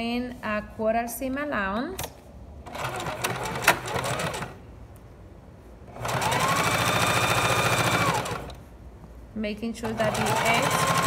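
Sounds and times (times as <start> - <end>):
sewing machine stitching: 2.7 - 4.6, 5.9 - 8.6, 9.8 - 11.0.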